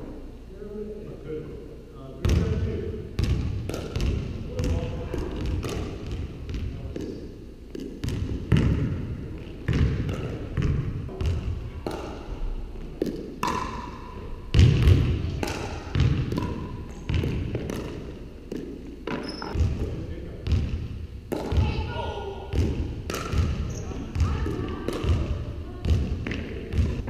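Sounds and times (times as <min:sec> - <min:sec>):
basketball bouncing on wooden floor: 0:03.2 - 0:07.1, 0:07.7 - 0:12.0, 0:14.5 - 0:21.8, 0:22.5 - 0:27.0
paddles hitting plastic ball: 0:03.6 - 0:06.2, 0:06.9 - 0:08.8, 0:11.1 - 0:12.3, 0:12.9 - 0:19.7, 0:21.3 - 0:21.6, 0:22.5 - 0:23.6, 0:24.4 - 0:27.0.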